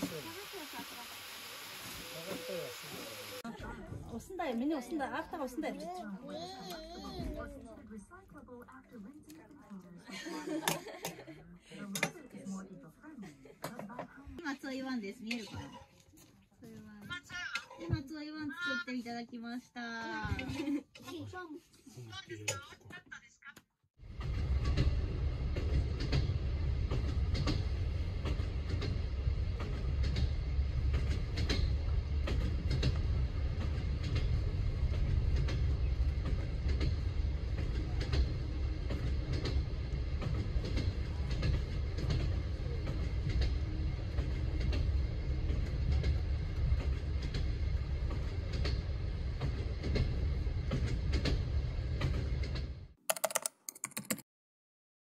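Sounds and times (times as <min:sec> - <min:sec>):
train rumbling: 0:24.0 - 0:52.8
clicks and knocks: 0:53.1 - 0:54.2.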